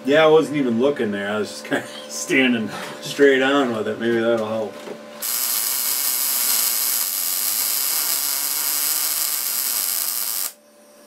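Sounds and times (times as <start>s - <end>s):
welding arc hiss and crackle: 5.2s - 10.6s.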